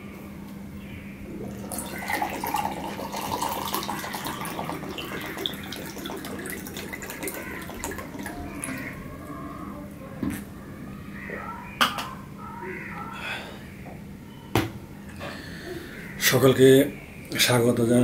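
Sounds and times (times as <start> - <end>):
drink pouring into a glass: 1.4 - 9.0.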